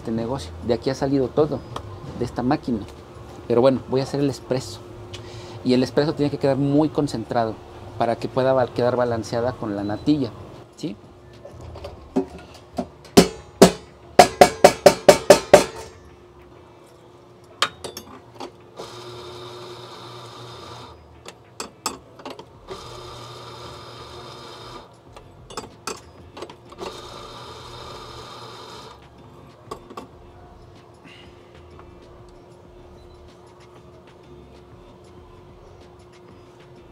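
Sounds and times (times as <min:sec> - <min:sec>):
portafilter knocking on knock box: 0:12.8 - 0:15.9
espresso grinder running: 0:18.8 - 0:21.0, 0:22.7 - 0:24.9, 0:26.8 - 0:29.0.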